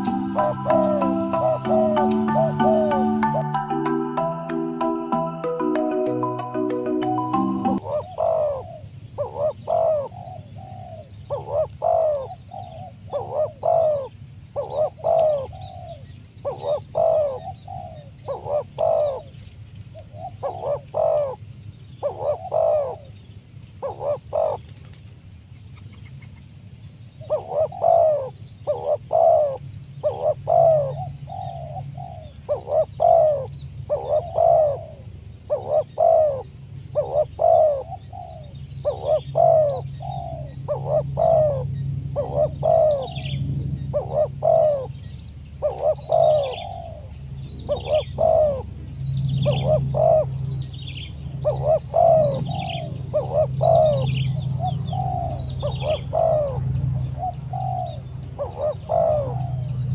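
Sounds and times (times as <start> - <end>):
higher bird chirps: 0.0 - 19.4
doves cooing: 0.0 - 23.2, 23.8 - 25.0, 27.2 - 59.9
low steady hum: 0.0 - 59.9.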